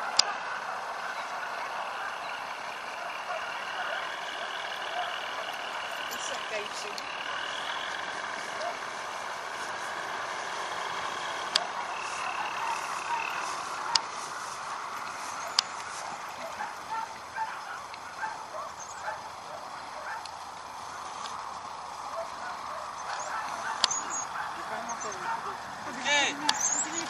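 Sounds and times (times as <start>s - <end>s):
distant calls: 0.0s - 27.0s
paramotor engine droning overhead: 0.0s - 27.0s
sharp clicks: 5.5s - 18.0s, 21.0s - 21.5s, 23.0s - 24.4s, 26.4s - 27.0s.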